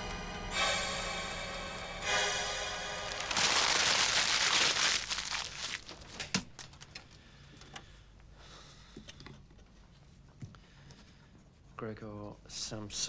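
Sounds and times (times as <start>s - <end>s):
paper crumpling: 3.1s - 7.0s.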